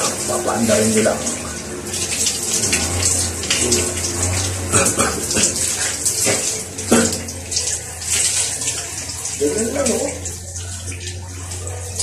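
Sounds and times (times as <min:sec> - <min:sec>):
shower water splashing on tiles: 0:00.0 - 0:12.0.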